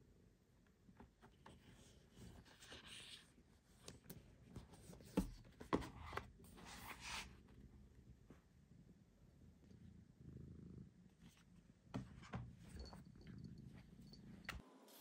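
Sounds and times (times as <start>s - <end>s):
books rustling and sliding: 4.8s - 7.3s
soft knocks of a book: 5.0s - 6.2s.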